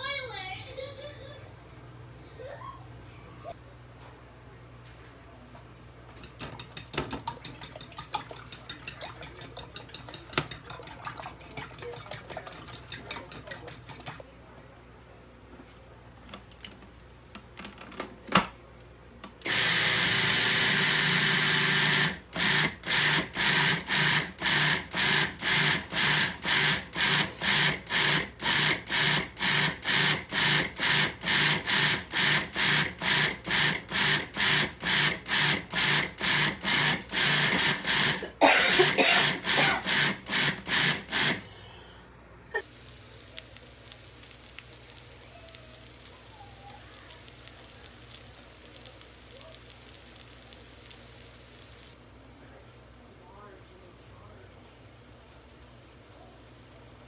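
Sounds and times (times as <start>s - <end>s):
food processor running: 19.4s - 41.5s.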